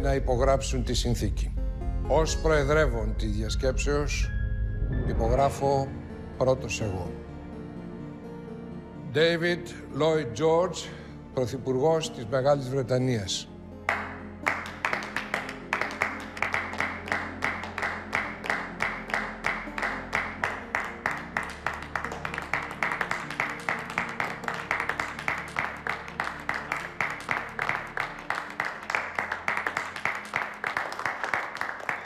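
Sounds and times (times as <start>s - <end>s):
music with low chords: 0.0s - 9.0s, 13.5s - 30.6s
people clapping in rhythm: 13.9s - 32.0s.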